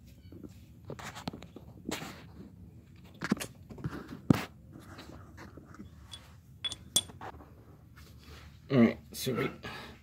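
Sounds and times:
handling knocks and rustles: 0:00.6 - 0:07.6.

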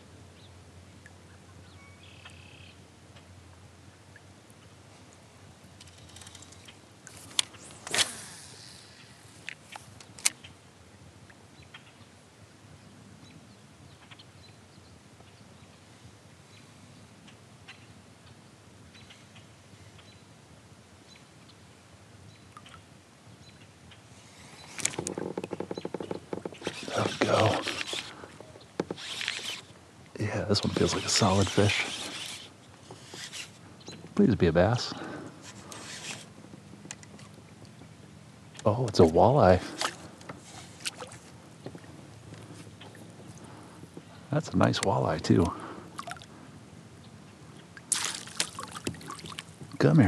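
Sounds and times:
quiet lake ambience: 0:00.0 - 0:50.0
clicks and knocks of fishing gear: 0:05.8 - 0:08.2, 0:09.4 - 0:10.5, 0:24.6 - 0:29.7, 0:35.2 - 0:37.9
rustling: 0:24.3 - 0:29.7, 0:30.6 - 0:33.7, 0:35.0 - 0:37.4.

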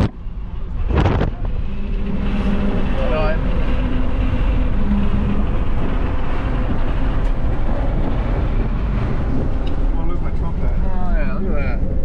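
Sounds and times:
car road noise from cabin: 0:00.0 - 0:12.0.

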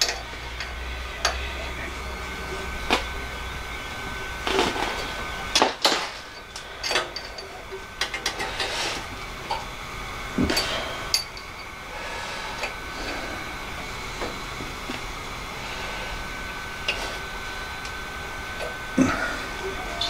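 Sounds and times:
hand tools tapping on metal: 0:00.0 - 0:01.6, 0:04.4 - 0:09.7, 0:10.4 - 0:11.7.

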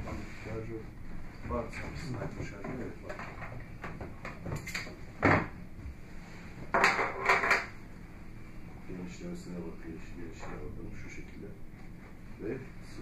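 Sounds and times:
wooden cabinet knocks and rattles: 0:02.5 - 0:05.6.

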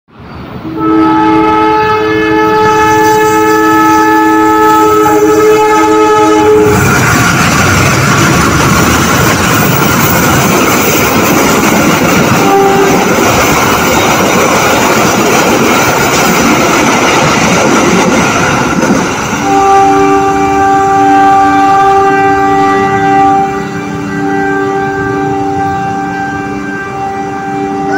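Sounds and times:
train rumble and wheel clatter: 0:00.1 - 0:27.9
locomotive air horn: 0:00.6 - 0:07.0, 0:12.4 - 0:13.1, 0:19.4 - 0:27.9.

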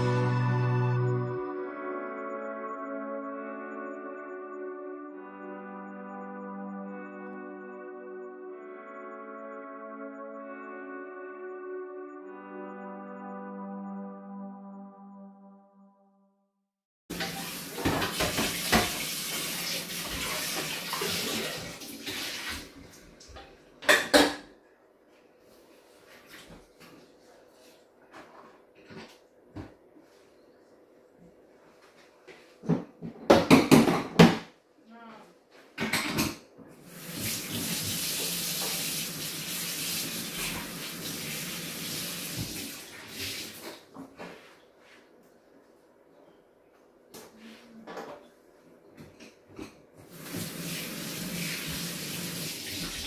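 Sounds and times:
crockery and pots clinking: 0:17.1 - 0:19.1
tap running into metal sink: 0:17.1 - 0:21.4
tap water running into sink: 0:17.1 - 0:23.4, 0:36.9 - 0:43.8, 0:50.0 - 0:53.0.

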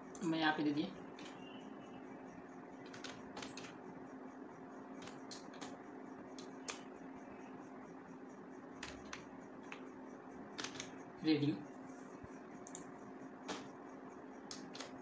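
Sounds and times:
steady low hum: 0:00.0 - 0:15.0
keyboard keystrokes: 0:10.5 - 0:10.9, 0:12.6 - 0:13.8, 0:14.5 - 0:15.0.

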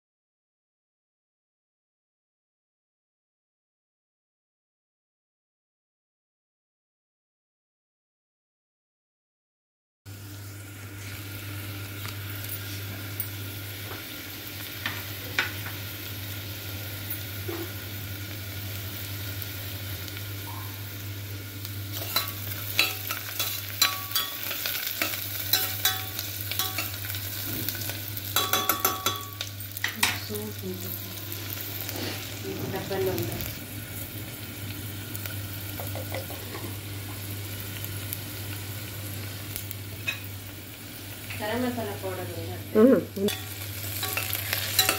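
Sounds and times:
onions sizzling in oil: 0:10.1 - 0:44.9
spoon scraping metal pot: 0:43.3 - 0:44.9.

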